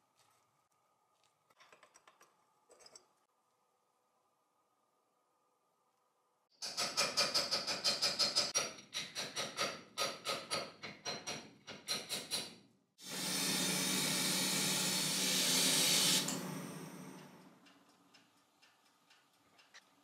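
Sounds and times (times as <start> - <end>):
compressed air hissing: 13.0 - 16.4.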